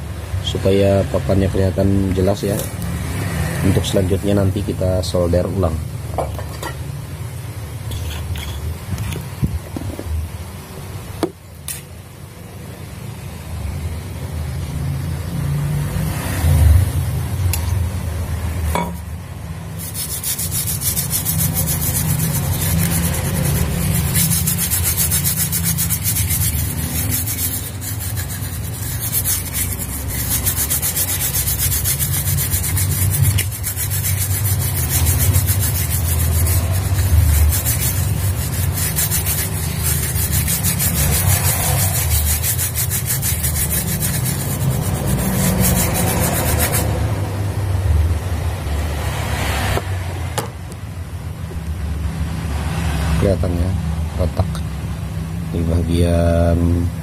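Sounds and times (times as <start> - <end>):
steady low hum: 16.8 - 48.7
brush scrubbing circuit board: 19.7 - 46.9.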